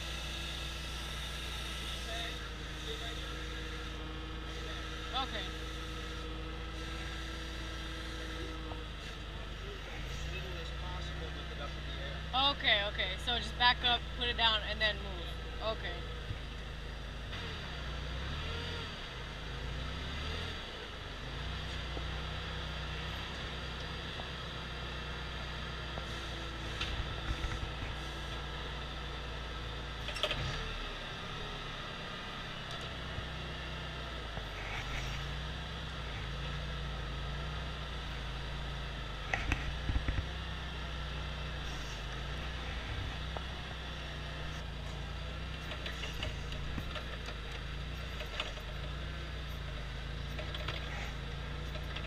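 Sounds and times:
forklift engine running: 0.0 - 52.0
sharp knocks and rattles: 45.6 - 52.0.

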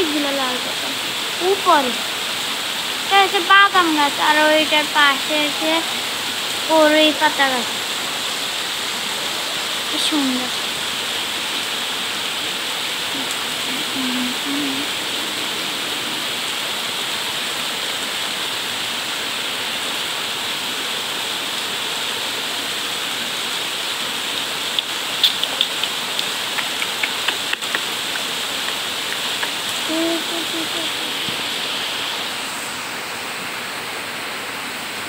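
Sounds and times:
rain on leaves: 0.0 - 35.0
sharp close taps: 24.8 - 29.6.

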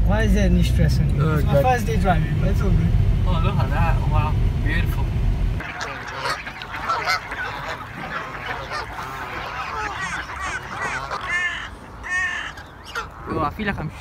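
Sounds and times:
car road rumble: 0.0 - 13.2
waterfowl flock calling: 5.6 - 13.7.

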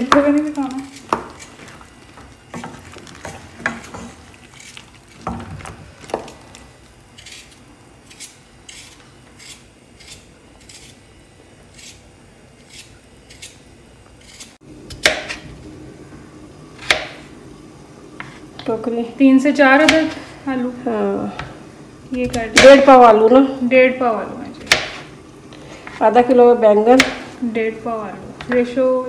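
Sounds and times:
wooden spoon scraping metal pot: 0.0 - 6.4
light sizzle: 0.0 - 29.0.

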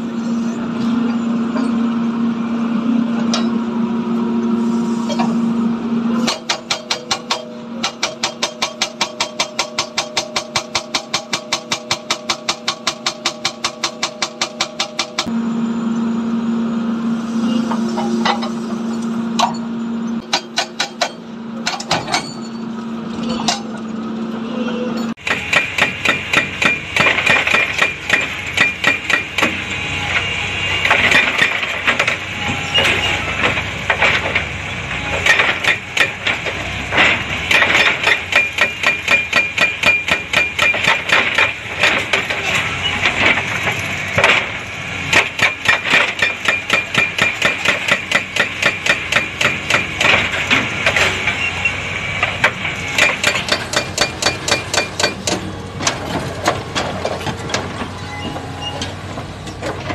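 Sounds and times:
hydraulic breaker hammering rock: 6.2 - 15.3, 20.2 - 22.4, 25.2 - 51.5, 52.2 - 57.8.

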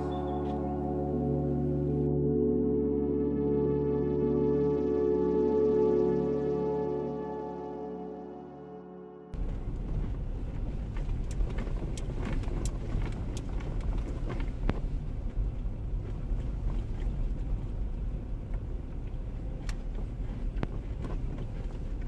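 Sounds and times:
road and engine rumble: 0.0 - 2.4, 9.4 - 22.0
sharp clicks and ticks: 9.4 - 14.8.

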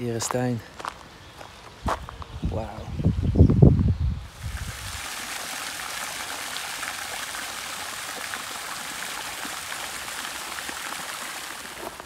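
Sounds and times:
fountain splashing into basin: 4.3 - 12.0.

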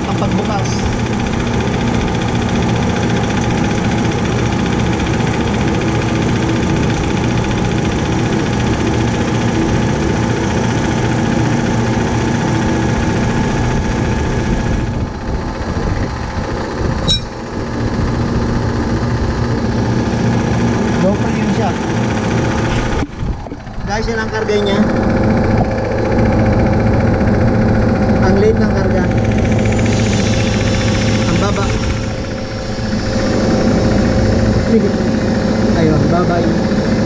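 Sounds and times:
refrigeration compressor humming: 0.0 - 37.0.

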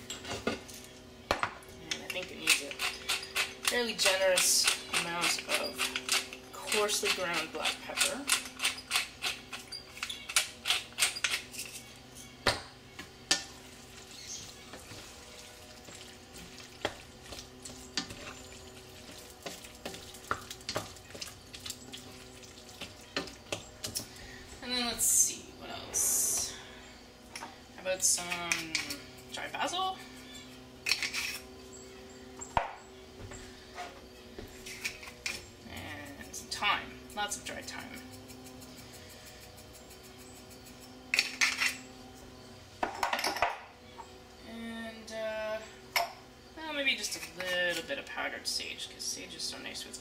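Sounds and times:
faint steady hum: 0.0 - 50.0
pepper mill grinding: 2.1 - 12.0, 28.0 - 31.5, 34.6 - 42.2
wooden spoon stirring thick sauce: 14.5 - 23.7.

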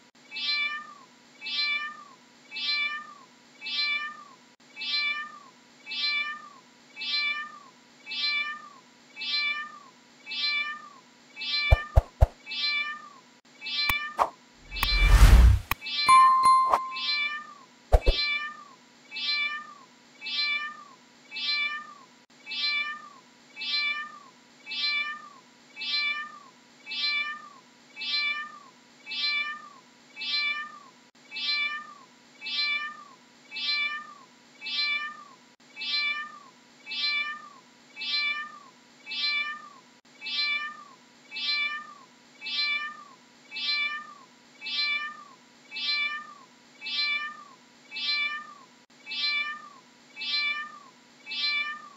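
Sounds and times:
cat meowing: 44.8 - 51.9.

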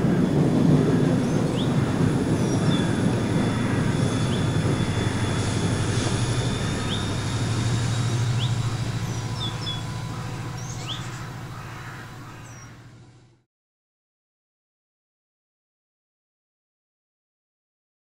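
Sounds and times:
model train rumbling past: 0.0 - 13.4
bird chirps: 1.2 - 12.8.

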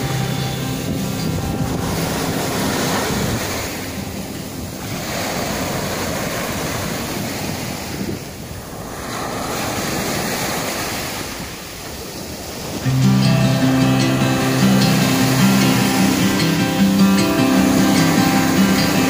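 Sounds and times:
wind rumbling on microphone: 0.0 - 13.2
sea waves washing on shore: 0.0 - 19.0.

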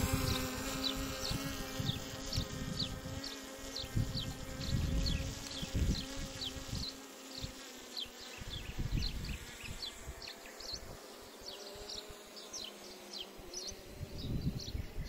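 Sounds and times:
wind buffeting microphone: 0.0 - 6.9, 8.4 - 11.0, 13.8 - 15.0
drone propellers humming: 0.0 - 14.8.

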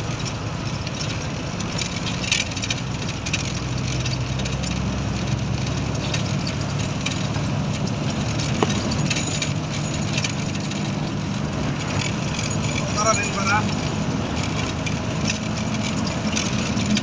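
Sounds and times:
rattles: 0.0 - 17.0
road and wind noise: 0.0 - 17.0
vehicle engine running: 0.0 - 17.0.

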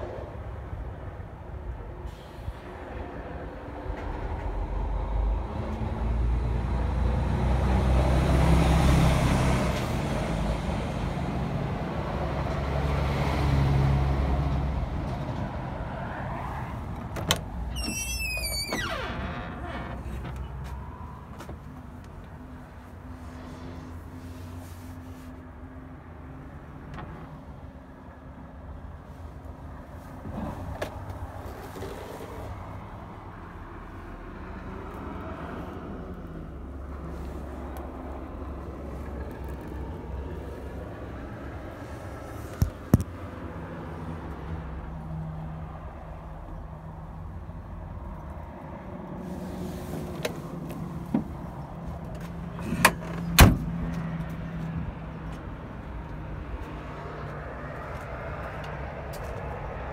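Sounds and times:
low vehicle hum: 0.0 - 59.9
truck cab door clunks: 17.0 - 20.8, 52.6 - 53.8.

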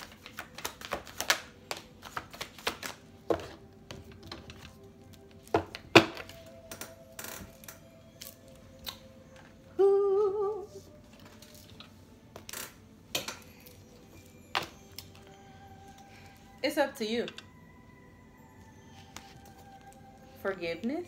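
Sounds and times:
cards tapped and shuffled: 0.0 - 7.8
faint background music: 0.0 - 21.0.

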